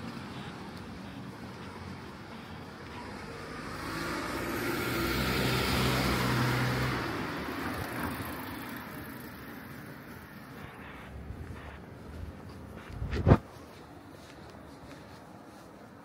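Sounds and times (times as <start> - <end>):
car passing by: 2.7 - 11.8.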